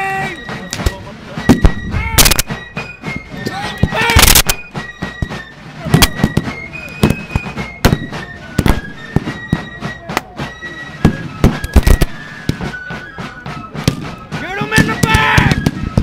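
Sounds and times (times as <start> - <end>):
high-pitched wind instrument tune: 0.0 - 16.0
musket volleys: 2.2 - 2.6, 3.8 - 4.7.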